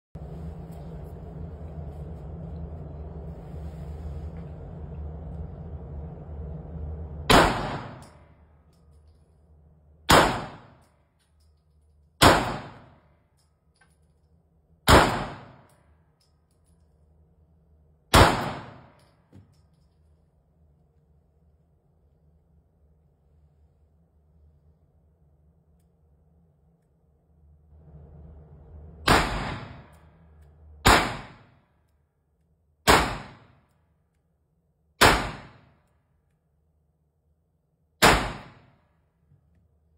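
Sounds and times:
pistol shots echoing indoors: 0:10.0 - 0:10.9, 0:12.2 - 0:13.2, 0:14.8 - 0:15.8, 0:18.1 - 0:19.1, 0:29.1 - 0:30.0, 0:30.8 - 0:31.7, 0:32.8 - 0:34.2, 0:34.8 - 0:36.3, 0:37.9 - 0:39.0
handgun shots echoing: 0:32.9 - 0:33.5, 0:38.0 - 0:38.7.

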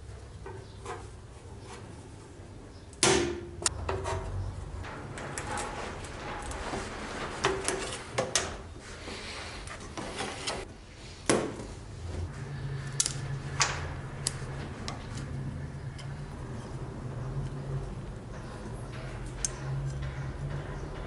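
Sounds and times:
wood and metal scraping and creaking: 0:03.7 - 0:10.7, 0:12.0 - 0:21.0
sharp clicks and knocks: 0:13.0 - 0:21.0.

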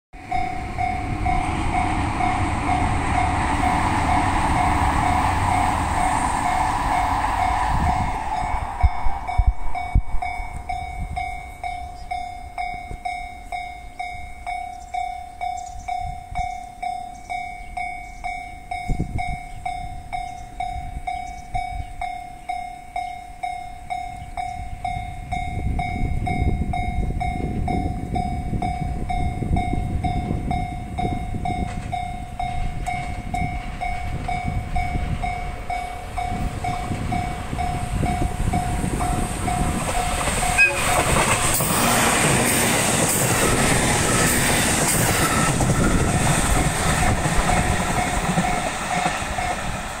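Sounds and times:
hissing train noise: 0:00.2 - 0:13.2, 0:27.4 - 0:50.0
level crossing alarm chiming: 0:00.2 - 0:49.8
low rumble of rail traffic: 0:00.2 - 0:50.0.

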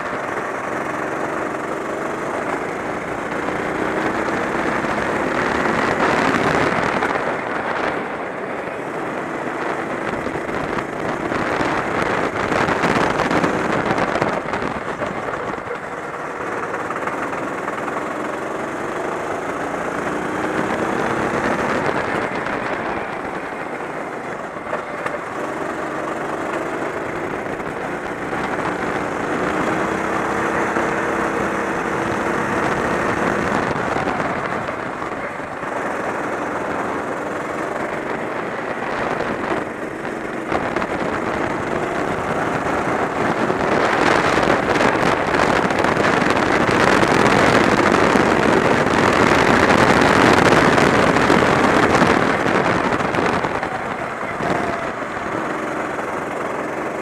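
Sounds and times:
kart engine revving: 0:00.0 - 0:57.0
wind rushing: 0:18.8 - 0:56.2.

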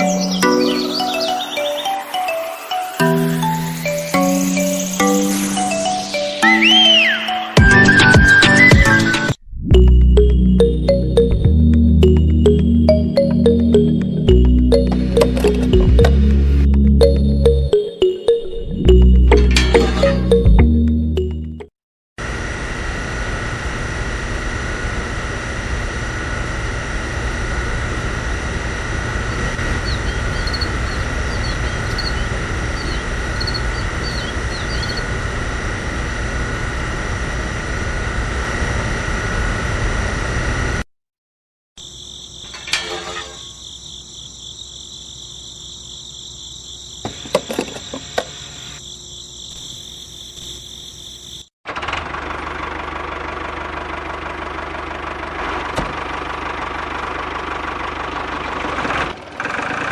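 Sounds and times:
small motor pump whirring: 0:27.6 - 0:36.6.

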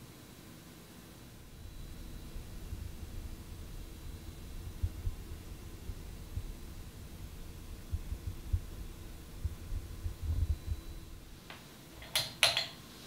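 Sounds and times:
ceiling fan running: 0:00.0 - 0:13.0
low irregular thumping: 0:01.5 - 0:11.6.

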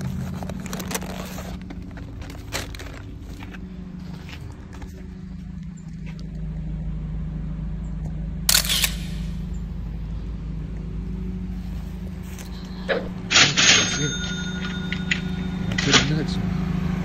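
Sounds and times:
car engine hum and road noise: 0:00.0 - 0:17.0
sharp click: 0:08.5 - 0:09.4.

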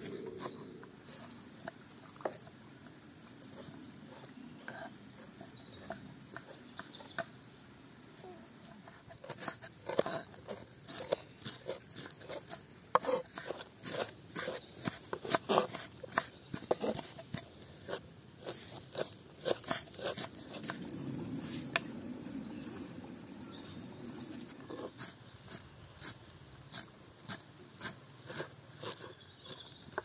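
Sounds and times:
knives chopping herbs on wood: 0:08.8 - 0:21.0, 0:24.4 - 0:30.0.

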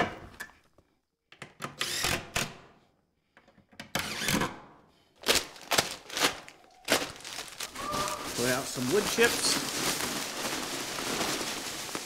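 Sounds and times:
scrapes and rustles of handling: 0:05.3 - 0:12.0.

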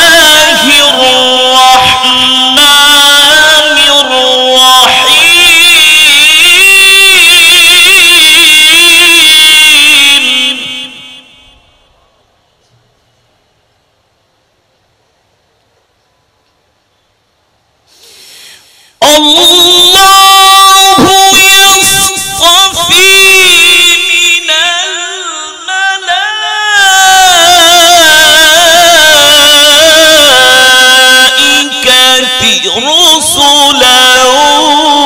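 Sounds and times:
man chanting melodic recitation: 0:00.0 - 0:11.4, 0:19.0 - 0:35.0.

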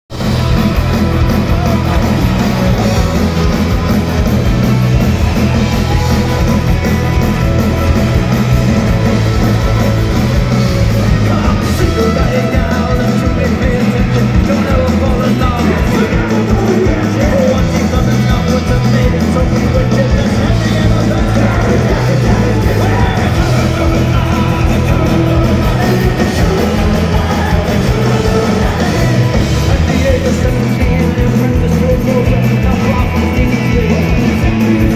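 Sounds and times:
punk rock band playing live: 0:00.1 - 0:34.9
man singing: 0:09.5 - 0:34.9.

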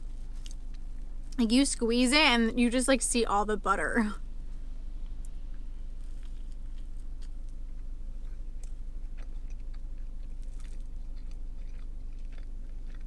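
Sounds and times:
person chewing crunchy toast: 0:00.0 - 0:01.4, 0:06.0 - 0:13.0
low hum: 0:00.0 - 0:13.0.

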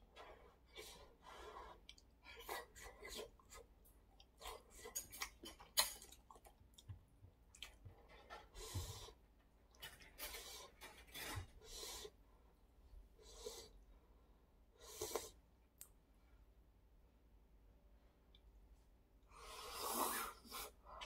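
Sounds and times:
soft chewing: 0:00.0 - 0:12.2.

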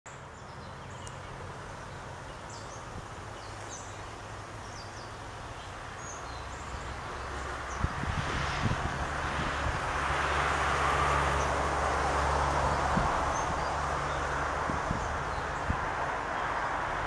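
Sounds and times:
wind buffeting microphone: 0:06.3 - 0:17.0.

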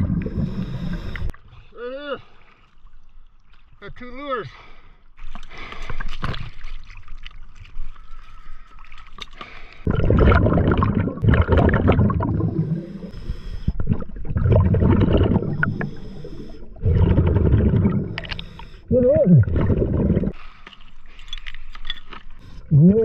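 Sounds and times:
underwater bubble rushes: 0:00.0 - 0:01.3, 0:09.9 - 0:18.6, 0:19.3 - 0:20.4
water splashing and lapping: 0:00.0 - 0:22.7.

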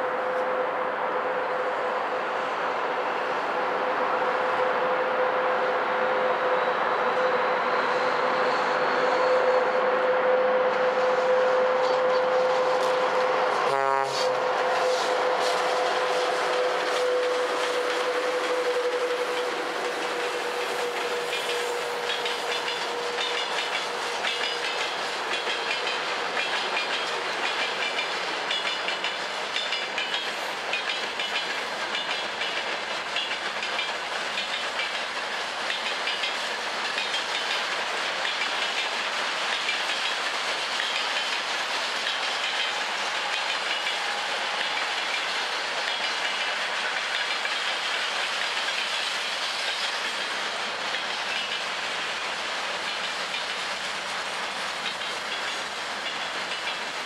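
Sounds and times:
train wheels clicking over rail joints: 0:14.4 - 0:57.0.

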